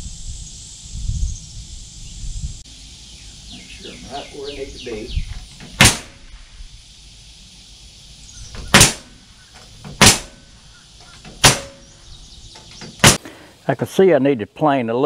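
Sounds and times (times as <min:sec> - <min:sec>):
nail gun firing: 0:05.6 - 0:06.2, 0:08.6 - 0:09.1, 0:09.8 - 0:10.4, 0:11.3 - 0:11.8, 0:13.0 - 0:13.2.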